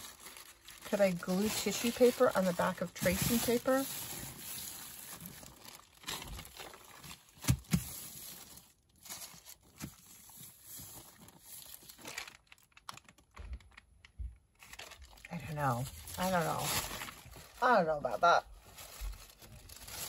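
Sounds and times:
paper rustling and crinkling: 0.0 - 13.8, 18.5 - 20.0.

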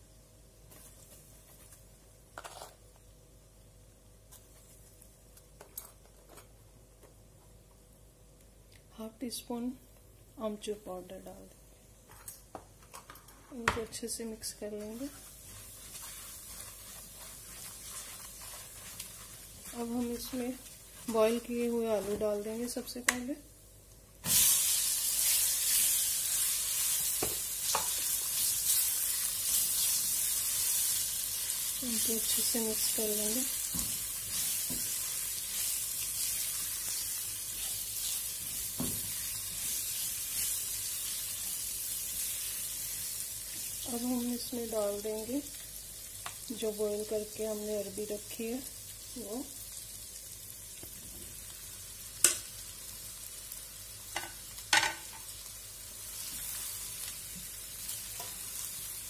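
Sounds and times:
spatula stirring in pan: 14.6 - 23.1, 24.2 - 43.9
hot oil crackling: 14.6 - 23.3, 24.1 - 47.1, 48.0 - 59.0.

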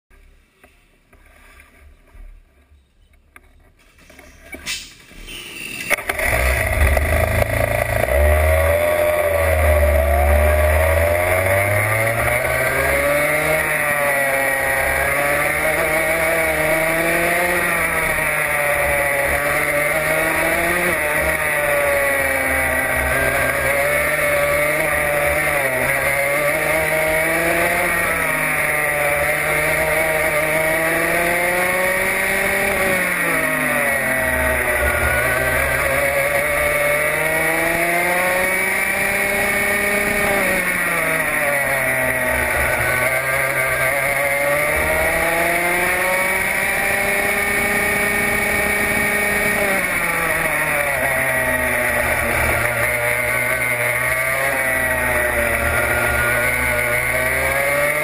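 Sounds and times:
kart engine revving: 4.0 - 58.0.

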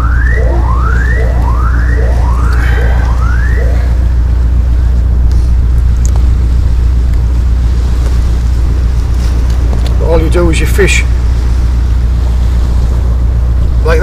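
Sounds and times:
distant whooping alarm: 0.0 - 5.2
wind buffeting microphone: 0.0 - 14.0.

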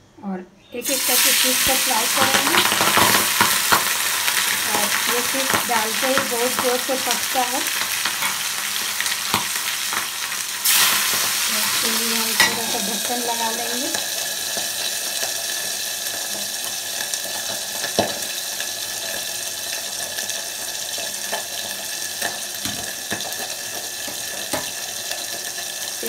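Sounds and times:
fish frying in oil: 0.8 - 26.0.

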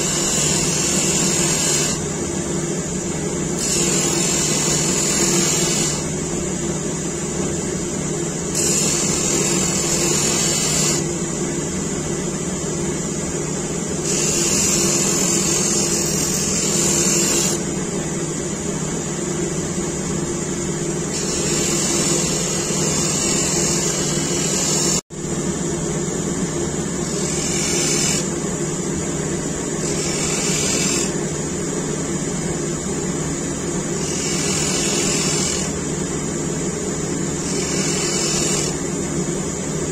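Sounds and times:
bench grinder motor humming: 3.6 - 6.1, 8.5 - 11.1, 14.0 - 17.6, 21.1 - 25.0, 27.0 - 28.4, 29.8 - 31.2, 34.0 - 35.7, 37.4 - 38.8
knife grinding on wheel: 8.6 - 11.1, 14.0 - 17.6, 21.1 - 25.0, 27.1 - 28.3, 29.8 - 31.2, 34.0 - 35.7, 37.4 - 38.8.

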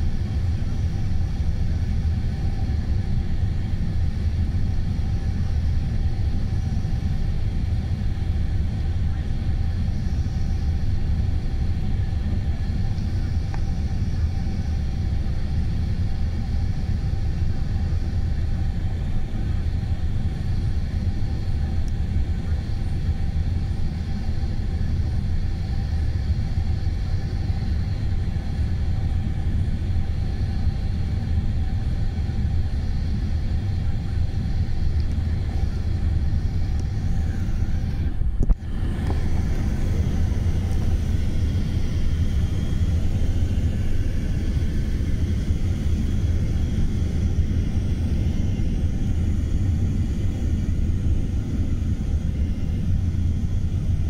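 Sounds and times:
jet engines roaring: 0.0 - 54.0
rushing air: 35.8 - 50.0.

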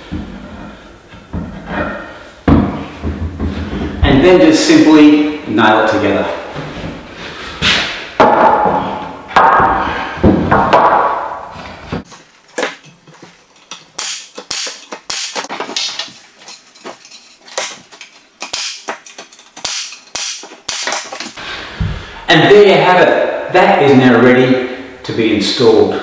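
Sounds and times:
pneumatic nail gun firing: 14.0 - 15.5, 18.4 - 21.3.

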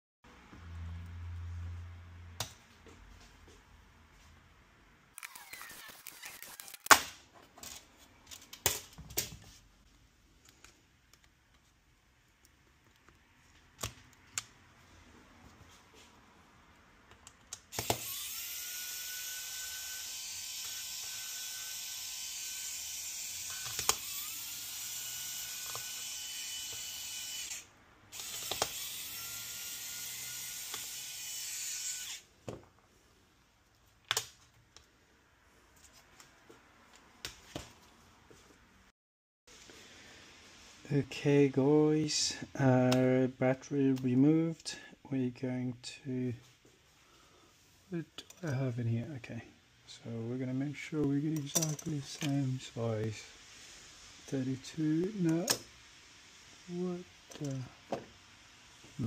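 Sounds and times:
electric screwdriver whirring: 5.2 - 7.0, 17.7 - 32.3.

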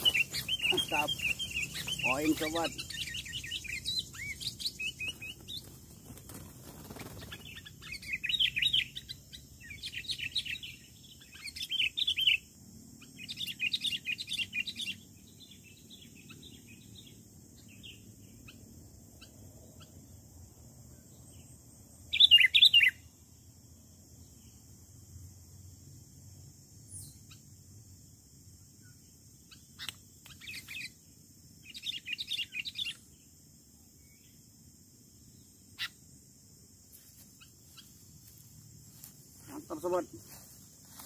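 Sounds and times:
bulbuls chattering: 0.0 - 7.4, 39.3 - 40.6.

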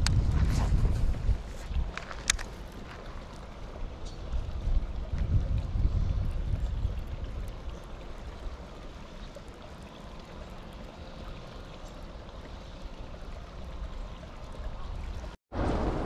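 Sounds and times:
wind rumbling on microphone: 0.0 - 9.0
steady outdoor hiss: 0.0 - 16.0.

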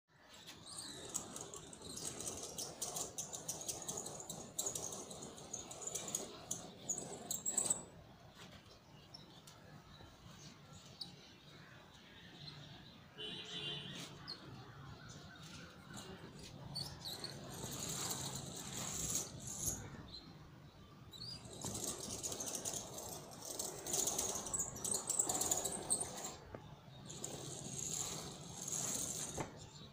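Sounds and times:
short high cord squeaks: 0.3 - 8.5, 13.2 - 20.1, 21.1 - 29.9
canvas blind rustling and flapping: 0.3 - 8.7, 15.5 - 19.9, 21.3 - 29.8.

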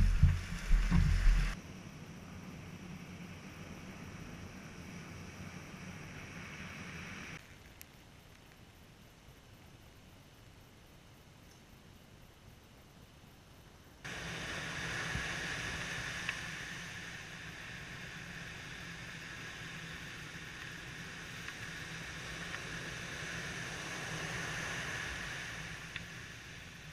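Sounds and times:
waves washing up a beach: 14.1 - 26.9.

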